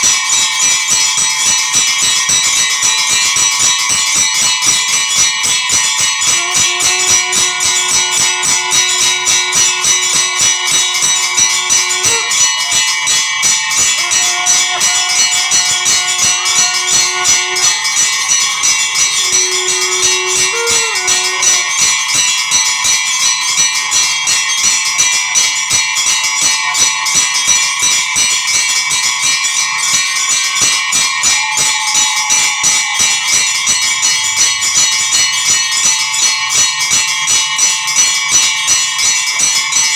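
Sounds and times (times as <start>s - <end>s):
bells ringing rapidly: 0.0s - 39.9s
long held notes: 6.2s - 22.2s.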